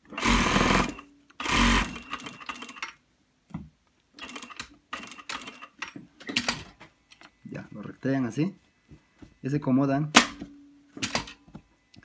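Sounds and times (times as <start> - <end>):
sewing machine stitching: 0.1 - 2.9.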